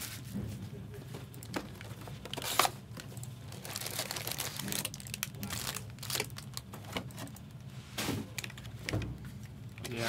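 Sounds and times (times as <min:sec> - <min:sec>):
plastic wrapping crinkling: 0:01.3 - 0:07.5.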